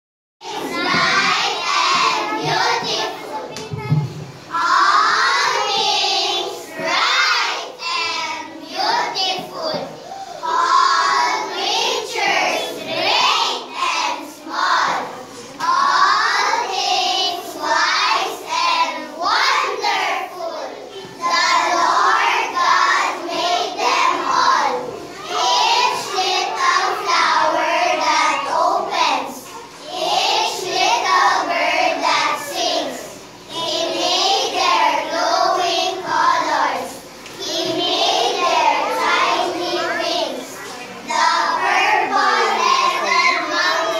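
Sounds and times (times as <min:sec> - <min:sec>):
young children singing: 0:00.4 - 0:43.9.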